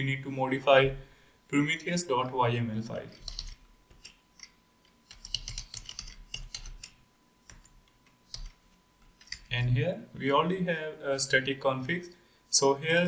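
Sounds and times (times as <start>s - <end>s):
keyboard typing: 3.1s - 7.7s, 8.3s - 8.6s.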